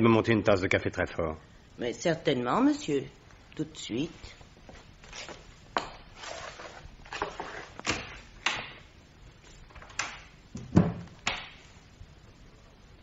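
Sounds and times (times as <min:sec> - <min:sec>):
door thud: 0:10.6 - 0:11.6.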